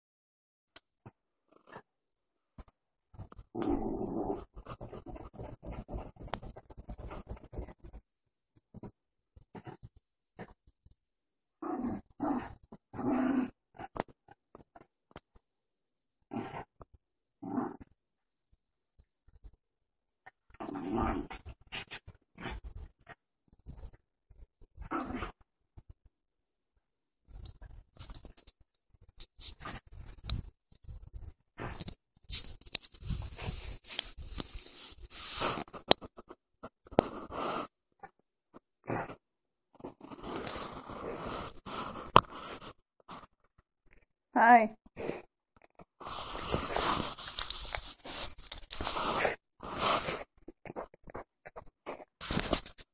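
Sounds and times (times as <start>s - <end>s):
scratching and rustling bedding: 3.2s - 9.9s, 46.1s - 52.9s
dog growling: 3.5s - 7.6s, 11.6s - 14.1s, 17.4s - 17.9s, 20.5s - 23.2s, 24.8s - 25.4s.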